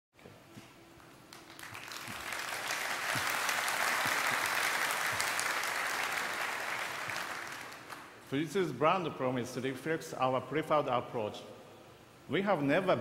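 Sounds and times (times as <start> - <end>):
audience applause: 1.3 - 8.2.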